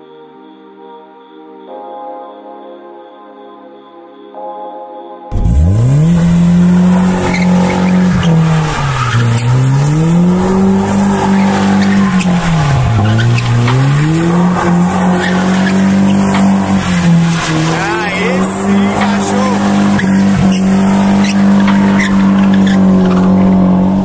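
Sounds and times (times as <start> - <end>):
car engine revving high: 5.3 - 24.0
tyres squealing on tarmac: 6.7 - 24.0.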